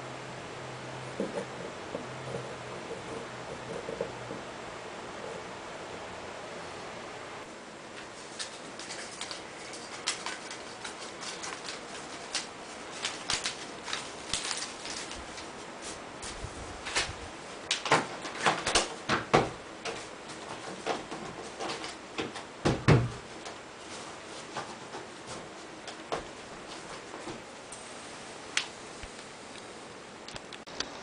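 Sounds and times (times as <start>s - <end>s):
faint steady hiss: 21.8s - 31.0s.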